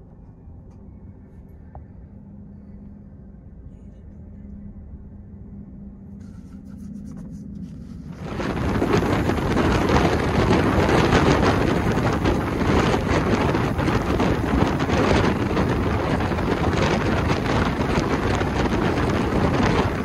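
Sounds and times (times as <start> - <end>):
train rumbling: 7.6 - 20.0
wind buffeting microphone: 8.0 - 20.0.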